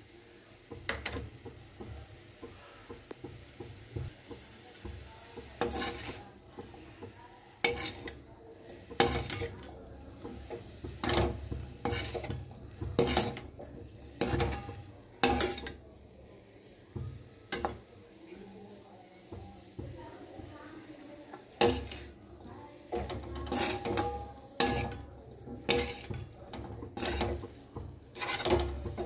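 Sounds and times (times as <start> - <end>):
steel spatula scraping pan: 5.6 - 7.0, 7.6 - 15.8, 21.6 - 22.2, 22.8 - 29.0.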